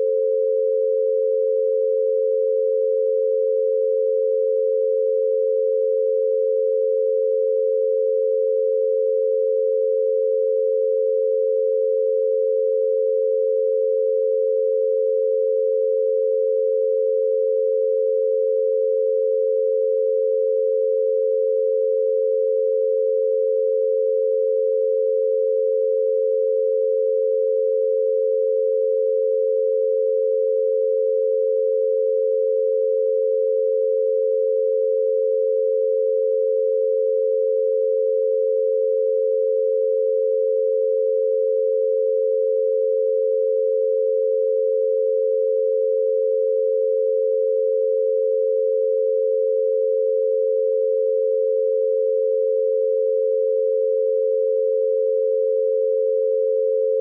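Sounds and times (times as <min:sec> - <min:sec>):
two steady pure tones: 0:00.0 - 0:57.0.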